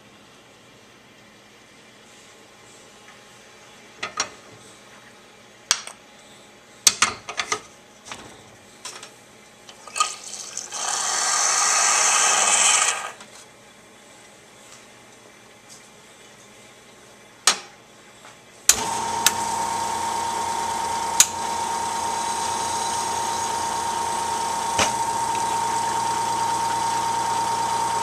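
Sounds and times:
espresso machine water rushing: 0:10.0 - 0:13.2, 0:18.7 - 0:28.0.

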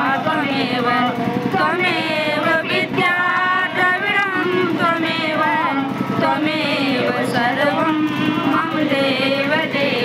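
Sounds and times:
song with sung melody: 0:00.0 - 0:10.0.

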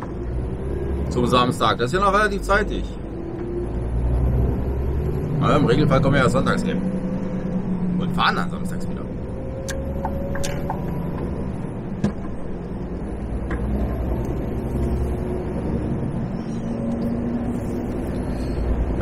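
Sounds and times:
lorry engine running: 0:00.0 - 0:19.0
road noise: 0:00.0 - 0:19.0
sharp click: 0:09.6 - 0:10.8.

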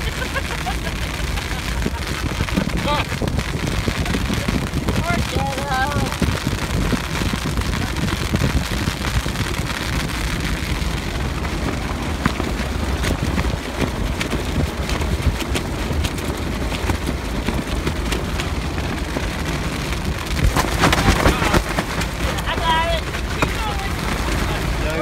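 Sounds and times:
road rumble inside car: 0:00.0 - 0:25.0
sharp ticks of rain: 0:00.0 - 0:25.0
tarp billowing: 0:00.0 - 0:25.0
wind buffeting: 0:00.0 - 0:25.0.

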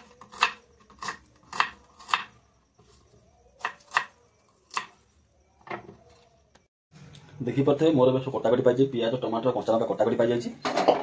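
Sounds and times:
knife chopping on wooden board: 0:00.0 - 0:02.4, 0:03.6 - 0:05.0.

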